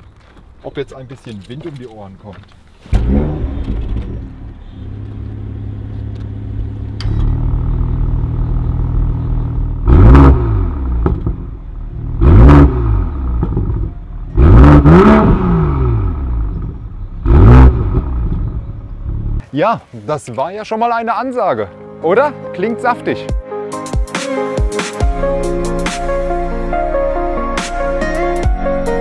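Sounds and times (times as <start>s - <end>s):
car engine starting and idling: 2.7s - 19.4s.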